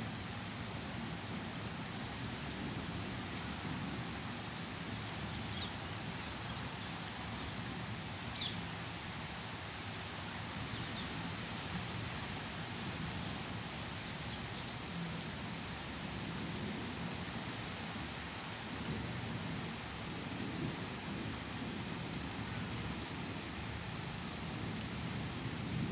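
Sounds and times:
steady rain on leaves: 0.0s - 25.9s.

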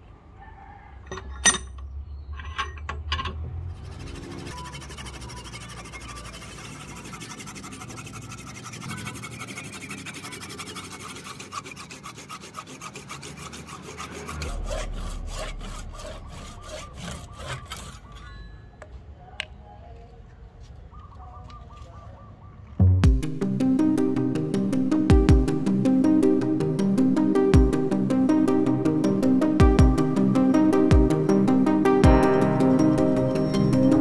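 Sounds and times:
hand saw cutting wood: 3.7s - 18.4s.

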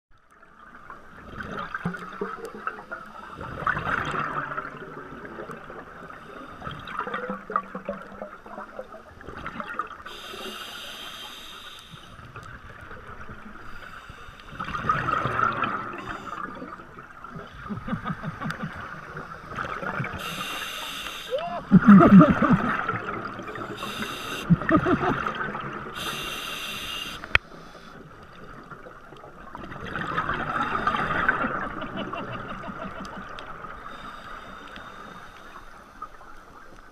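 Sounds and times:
diver exhaling bubbles underwater: 14.6s - 20.4s, 21.4s - 26.4s.

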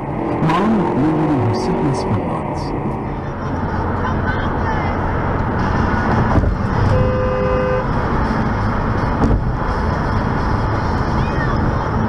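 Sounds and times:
tyre and road noise: 0.0s - 12.0s
low thumps: 5.4s - 7.0s, 9.0s - 9.6s
car horn: 6.7s - 8.0s.

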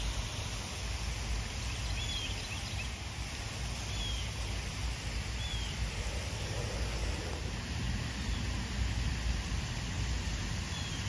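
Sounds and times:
wind rumble on microphone: 2.9s - 11.0s.

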